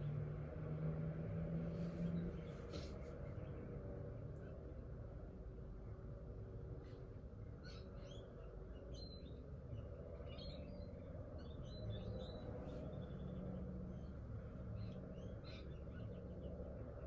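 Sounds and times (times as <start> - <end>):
small birds chirping: 1.7 - 4.8, 6.8 - 17.0.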